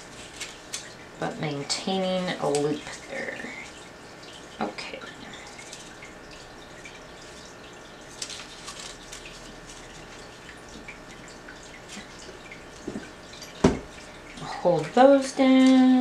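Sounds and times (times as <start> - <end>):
crisp paper crackles: 0.0 - 1.0, 8.1 - 10.3
paper rustling and crinkling: 0.0 - 1.0, 8.1 - 10.2.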